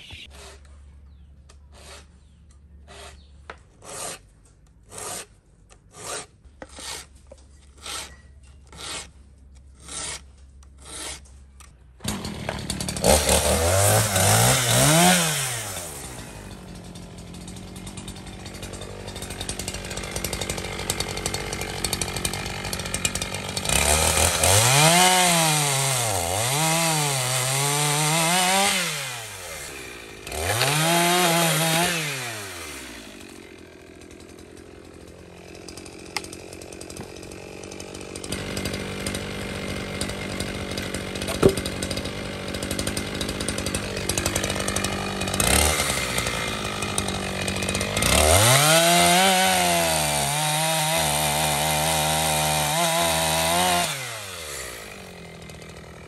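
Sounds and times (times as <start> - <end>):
chainsaw revving and cutting: 10.8 - 11.2, 12.0 - 56.0.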